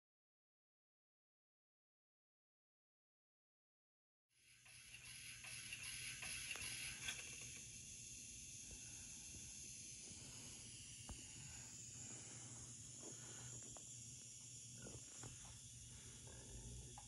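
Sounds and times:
steam hiss from small speaker: 0:04.4 - 0:17.0
low steady hum: 0:06.4 - 0:17.0.

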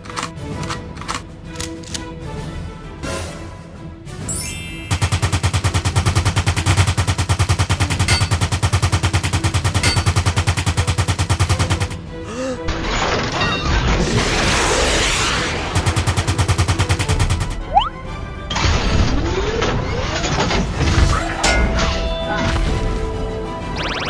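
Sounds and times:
machine gun fire: 0:04.9 - 0:12.0
loud rushing noise: 0:14.0 - 0:16.3.

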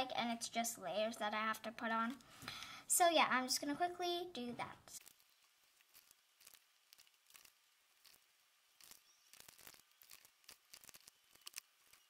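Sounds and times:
plastic beads clicking: 0:05.0 - 0:12.0.

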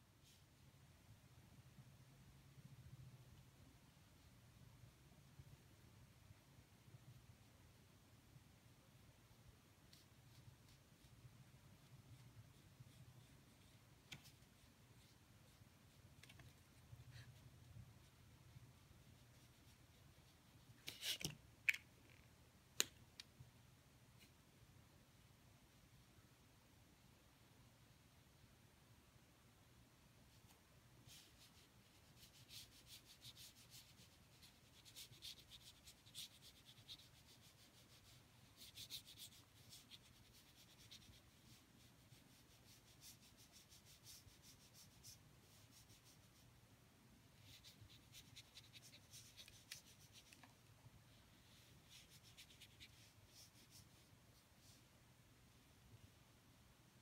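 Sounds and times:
brush scrubbing on paper: 0:47.4 - 0:50.4, 0:51.3 - 0:54.8.

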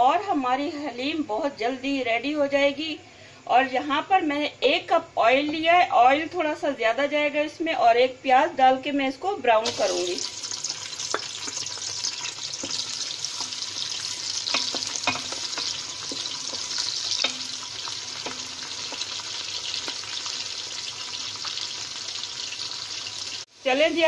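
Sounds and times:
onions sizzling in hot oil: 0:09.6 - 0:24.0
wooden spoon knocking on pot: 0:11.1 - 0:11.6, 0:14.4 - 0:19.1.

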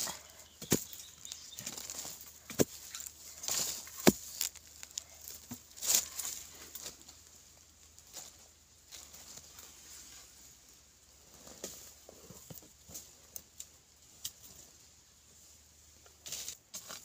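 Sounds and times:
soil clods scraping and crumbling: 0:00.0 - 0:10.4, 0:16.1 - 0:17.0
digging tool thudding into soil: 0:04.0 - 0:04.5.

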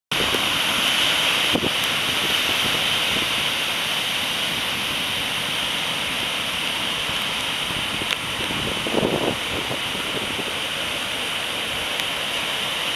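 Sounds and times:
heavy surf breaking on beach: 0:00.1 - 0:12.9
wind buffeting microphone: 0:01.4 - 0:03.6, 0:07.0 - 0:11.1.

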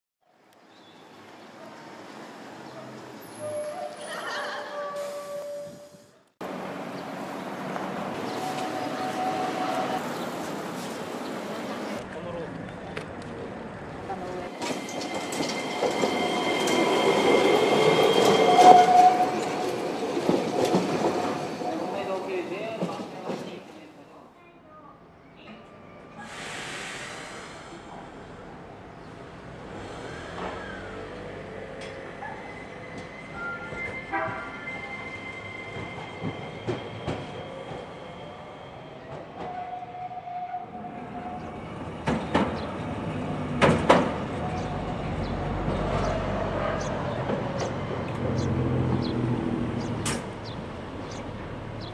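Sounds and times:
wheel squeal: 0:03.2 - 0:06.1, 0:14.8 - 0:19.5, 0:30.0 - 0:31.1, 0:31.8 - 0:38.8
streetcar wheels clacking on rails: 0:06.4 - 0:23.7, 0:41.0 - 0:51.9
tram running gear whine: 0:13.6 - 0:22.3, 0:28.5 - 0:51.9.

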